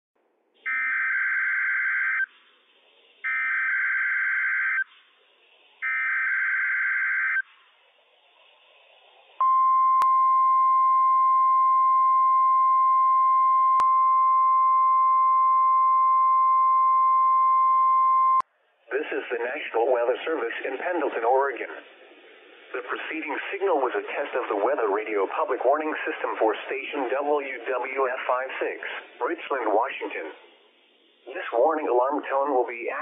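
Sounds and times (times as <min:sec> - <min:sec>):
steady alarm tone: 0:03.2 - 0:04.9, 0:05.8 - 0:07.4.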